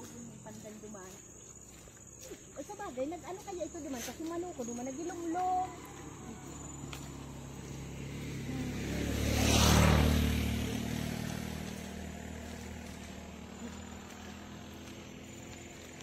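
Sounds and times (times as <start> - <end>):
vehicle passing by: 2.8 - 16.0.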